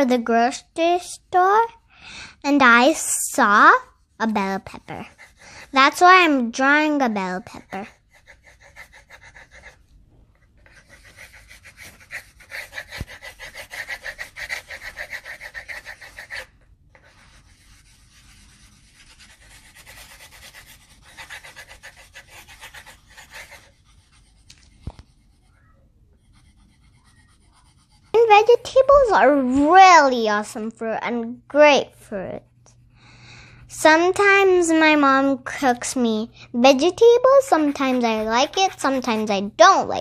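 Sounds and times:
pencil scratching on paper: 3.5s - 6.3s, 7.2s - 29.2s, 36.7s - 40.0s.

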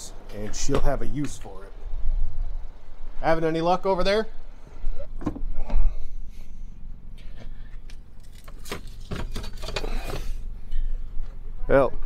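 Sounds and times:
low steady hum: 0.0s - 12.0s
clicks and knocks with rustling: 8.2s - 10.3s.

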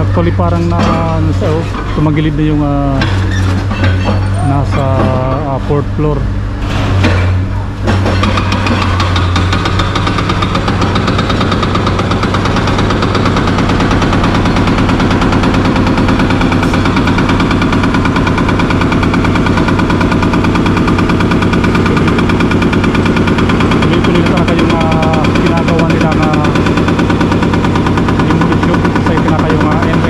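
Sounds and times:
excavator diesel engine knocking: 7.8s - 30.0s.

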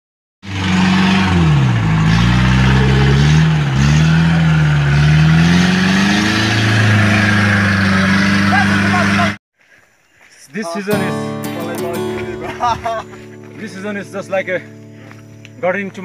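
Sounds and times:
jeep engine revving hard: 0.4s - 9.4s.

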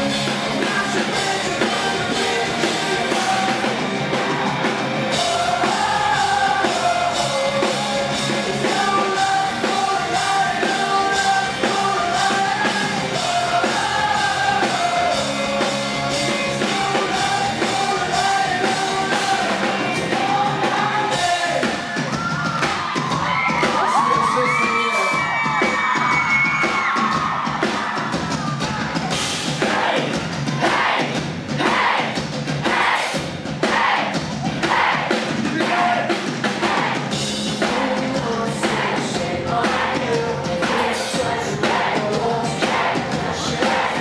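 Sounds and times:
person singing: 0.0s - 4.3s, 5.1s - 22.1s, 37.6s - 44.0s
live rock band playing: 0.0s - 44.0s.

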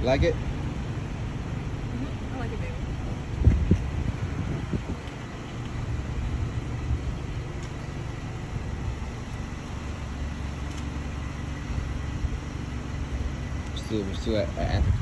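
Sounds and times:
traffic rumble: 0.0s - 15.0s
wind buffeting microphone: 2.5s - 7.5s, 14.5s - 15.0s.

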